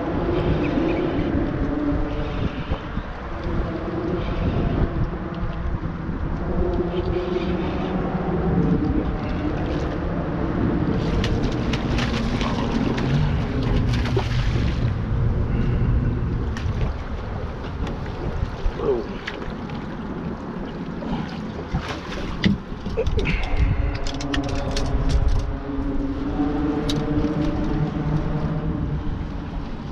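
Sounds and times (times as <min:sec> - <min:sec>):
boat motor humming: 0:00.0 - 0:29.9
wind buffeting microphone: 0:00.0 - 0:29.9
fast water rushing: 0:09.1 - 0:15.5, 0:16.5 - 0:24.9.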